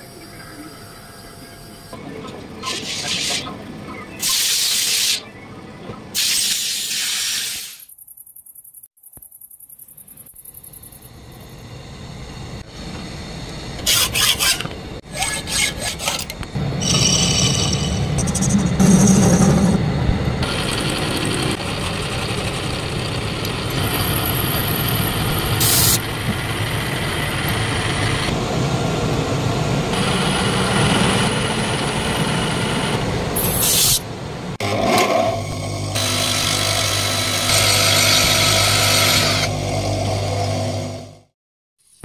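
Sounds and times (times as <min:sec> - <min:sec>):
grinding wheel humming: 0:10.9 - 0:33.4, 0:34.4 - 0:41.3
metal lathe cutting steel: 0:13.8 - 0:28.3, 0:34.6 - 0:41.1.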